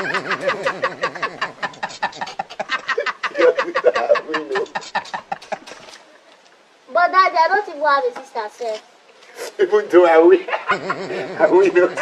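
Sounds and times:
man laughing hard: 0:00.0 - 0:05.7, 0:10.5 - 0:12.0.

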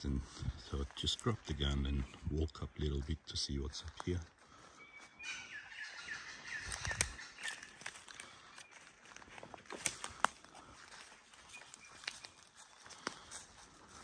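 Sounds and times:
bird chirping: 0:00.4 - 0:03.0, 0:04.6 - 0:09.2, 0:11.3 - 0:12.9
twigs cracking: 0:06.3 - 0:14.0
footsteps in leaf litter: 0:06.4 - 0:14.0.

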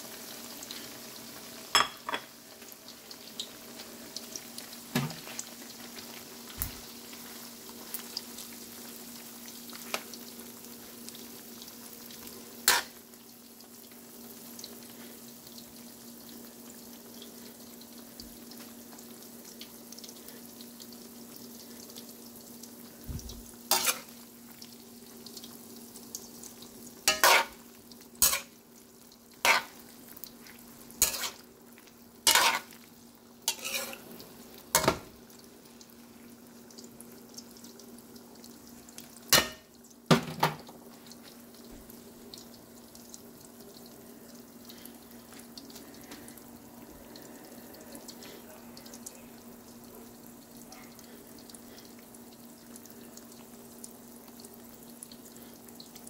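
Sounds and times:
food frying in oil: 0:00.0 - 0:56.0
metal utensil scraping wok: 0:12.6 - 0:13.0, 0:23.7 - 0:24.1, 0:27.1 - 0:27.6, 0:28.2 - 0:28.5, 0:29.4 - 0:29.8, 0:31.0 - 0:31.4, 0:32.2 - 0:32.8, 0:33.5 - 0:34.0.

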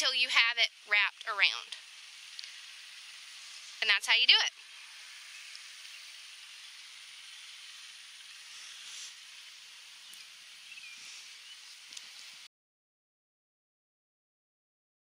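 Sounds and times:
faint steady hiss: 0:00.0 - 0:12.5
faint tick: 0:02.4 - 0:02.6.

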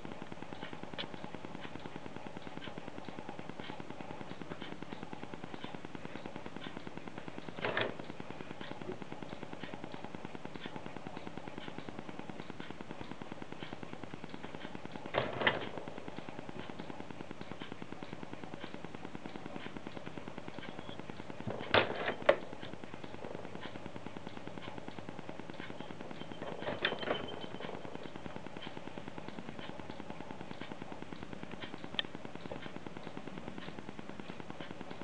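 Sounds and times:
fast even ticking: 0:00.0 - 0:35.0
mechanical lever clicks and clacks: 0:15.1 - 0:15.8, 0:21.5 - 0:22.4, 0:26.4 - 0:27.9.

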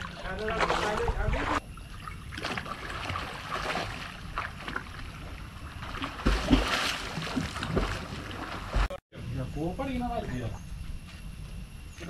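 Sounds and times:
water splashing from swimmers: 0:00.0 - 0:01.6, 0:02.3 - 0:09.0.

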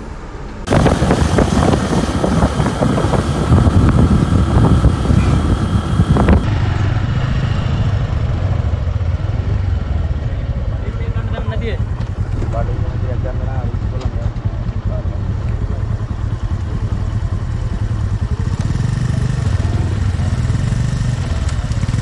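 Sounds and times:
vehicle engine rumble: 0:00.0 - 0:22.0
wind rushing on microphone: 0:00.6 - 0:10.2.

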